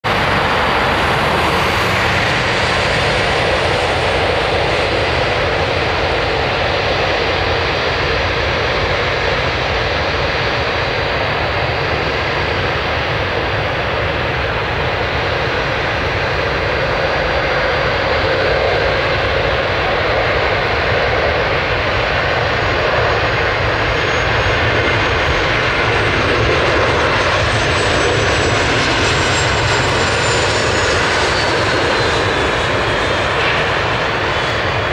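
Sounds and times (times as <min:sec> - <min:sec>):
high turbine whine: 0:00.0 - 0:34.9
jet engine roar: 0:00.0 - 0:34.9.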